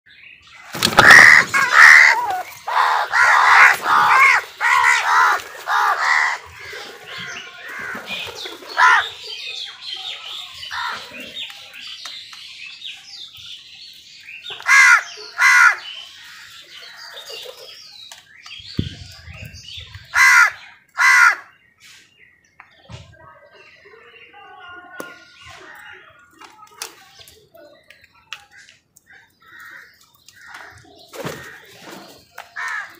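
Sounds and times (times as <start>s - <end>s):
crows cawing: 0.8s - 8.0s, 8.8s - 9.1s, 14.6s - 17.1s, 20.1s - 21.5s, 32.6s - 32.9s.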